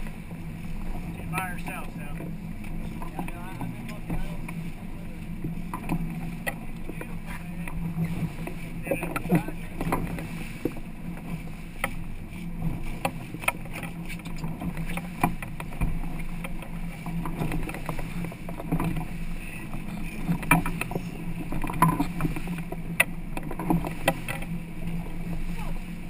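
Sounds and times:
boat engine humming: 0:00.0 - 0:26.0
sharp knocks and clicks: 0:05.4 - 0:12.0, 0:12.6 - 0:19.1, 0:19.8 - 0:24.6.

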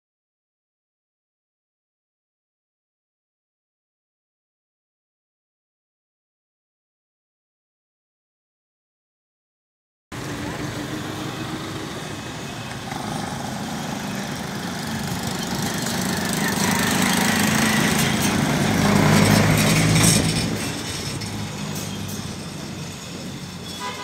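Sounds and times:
vehicle engine passing by: 0:10.1 - 0:23.5.

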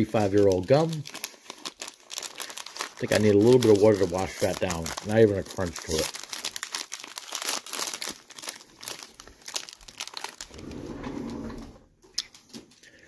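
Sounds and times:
card pack wrapper crinkling and tearing: 0:00.0 - 0:10.6.

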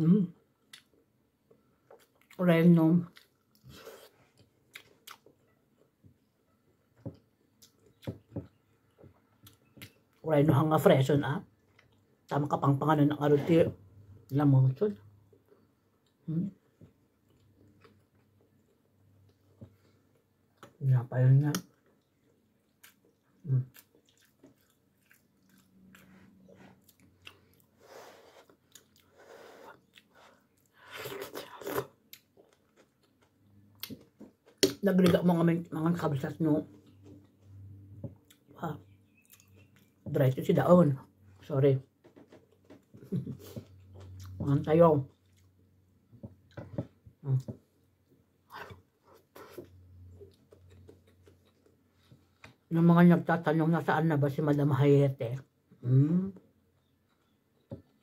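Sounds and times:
soft chewing: 0:00.3 - 0:10.2, 0:11.4 - 0:12.4, 0:13.4 - 0:20.8, 0:21.5 - 0:35.3, 0:35.9 - 0:40.2, 0:41.0 - 0:52.7, 0:55.5 - 0:58.0.

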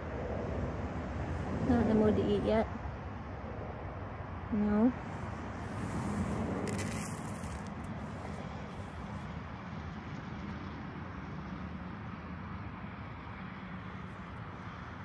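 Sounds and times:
seeds rustling in a hand: 0:05.6 - 0:08.9.

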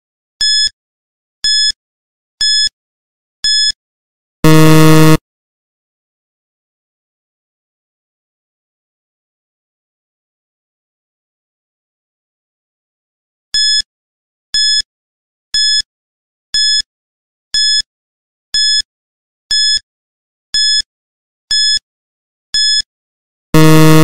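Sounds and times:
high-pitched timer beeps: 0:02.4 - 0:02.7, 0:03.5 - 0:03.7, 0:19.5 - 0:19.8, 0:20.6 - 0:20.8, 0:21.5 - 0:21.8, 0:22.6 - 0:22.8.

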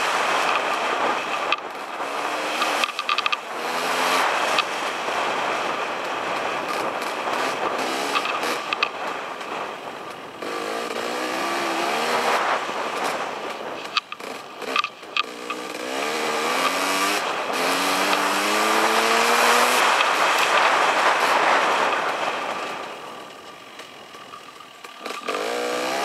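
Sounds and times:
dirt bike engine revving: 0:00.0 - 0:26.0
rushing noise: 0:00.0 - 0:26.0
sharp clicks and knocks: 0:00.4 - 0:03.5, 0:08.1 - 0:09.5, 0:12.9 - 0:16.8.

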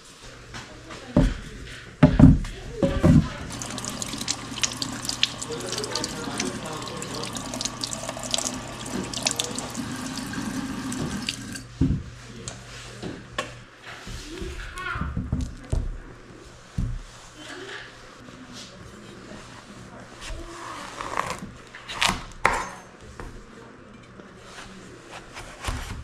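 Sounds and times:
water splashing off squash: 0:03.5 - 0:11.6
faucet running into steel sink: 0:03.5 - 0:11.7.

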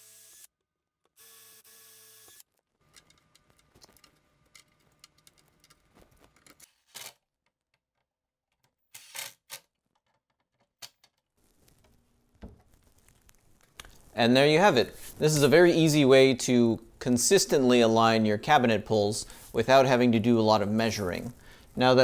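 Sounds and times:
cordless drill boring wood: 0:00.0 - 0:00.5, 0:01.2 - 0:02.4, 0:08.9 - 0:09.4.

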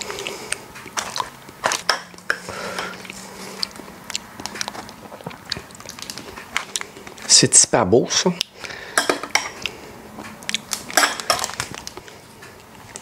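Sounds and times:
kitchenware clicks and knocks: 0:09.0 - 0:09.5, 0:10.9 - 0:11.6.

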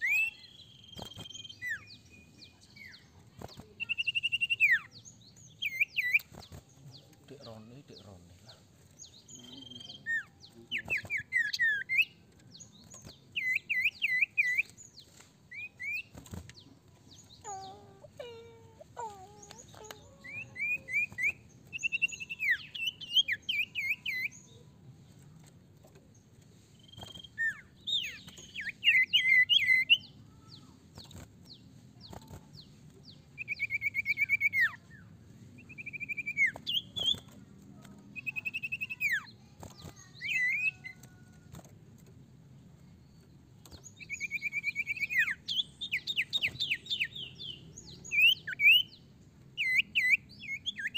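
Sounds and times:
bird chirps and trills: 0:00.0 - 0:24.8, 0:25.4 - 0:41.7, 0:42.9 - 0:50.9
lower bird calls: 0:15.5 - 0:24.4.

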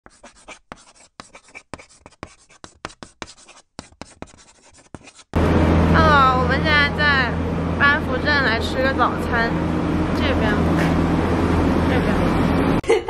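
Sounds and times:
pen writing on paper: 0:00.0 - 0:05.3
traffic hum: 0:05.4 - 0:12.8
person speaking: 0:06.0 - 0:09.6.

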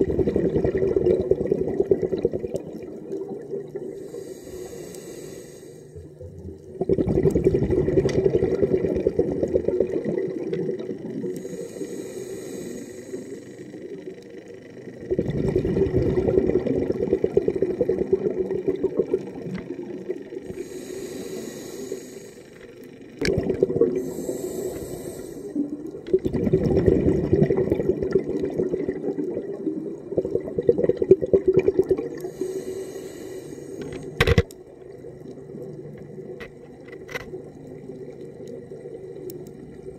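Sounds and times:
exhaled bubbles underwater: 0:00.0 - 0:04.5, 0:06.0 - 0:11.8, 0:15.0 - 0:21.6, 0:23.2 - 0:32.7, 0:34.0 - 0:39.9
regulator hissing inhalations: 0:03.9 - 0:06.2, 0:11.4 - 0:14.1, 0:20.0 - 0:22.8, 0:23.9 - 0:25.8, 0:32.2 - 0:34.2.

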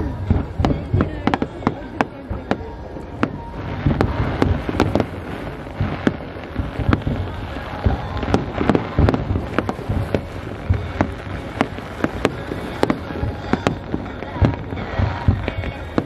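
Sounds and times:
low rumble of overlapping bursts: 0:00.0 - 0:16.0
firework shells bursting: 0:03.2 - 0:16.0.

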